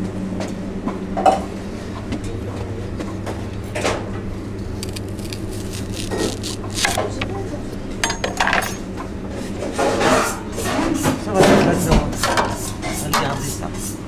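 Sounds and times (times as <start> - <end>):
steady low hum: 0.0 - 14.0
knife cutting onion on board: 4.8 - 7.1
utensils and dishes clattering: 8.0 - 8.9.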